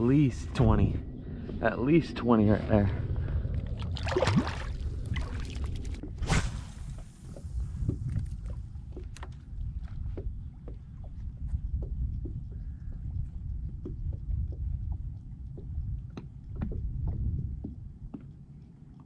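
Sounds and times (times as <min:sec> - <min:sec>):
wind rumble on microphone: 0:00.0 - 0:19.0
water lapping against boat hull: 0:03.2 - 0:06.2, 0:06.8 - 0:19.0.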